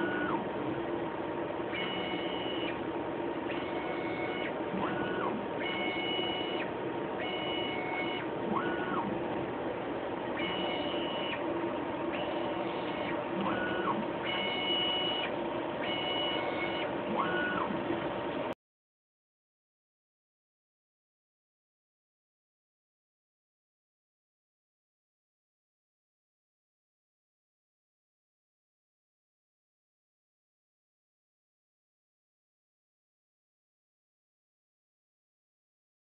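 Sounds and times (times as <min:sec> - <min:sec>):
robot motors whining: 0:00.0 - 0:00.4, 0:01.7 - 0:02.8, 0:03.5 - 0:09.5, 0:10.3 - 0:11.5, 0:12.1 - 0:18.2
machine hum: 0:00.0 - 0:18.6.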